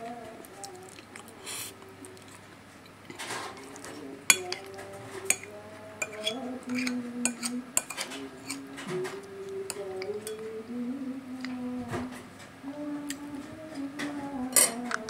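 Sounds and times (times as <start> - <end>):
cutlery scraping a ceramic plate: 3.2 - 8.9
sharp cutlery clinks: 5.3 - 8.6.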